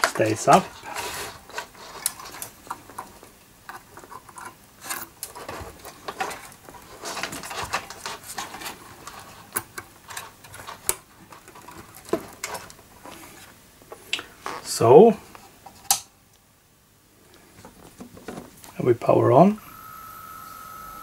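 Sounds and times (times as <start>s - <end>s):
hands handling cables and hardware: 0.0s - 14.6s.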